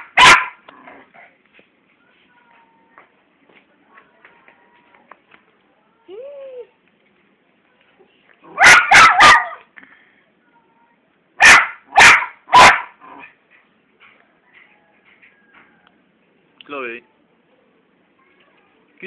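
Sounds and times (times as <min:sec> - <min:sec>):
dog barking loudly: 0:00.0 - 0:00.7, 0:08.4 - 0:09.6, 0:11.4 - 0:13.3.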